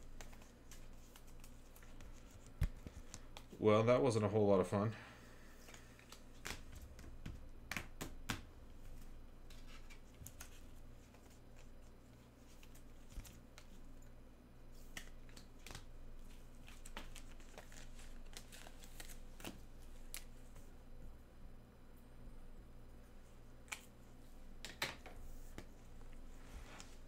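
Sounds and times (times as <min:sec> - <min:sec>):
low steady hum: 0:00.0 - 0:27.0
cards clicking and rustling: 0:00.1 - 0:03.6, 0:05.6 - 0:14.1, 0:14.8 - 0:20.6.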